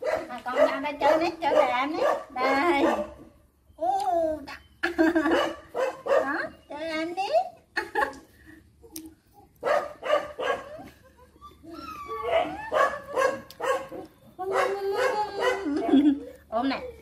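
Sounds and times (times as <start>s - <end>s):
puppies yapping and whining: 10.4s - 17.0s.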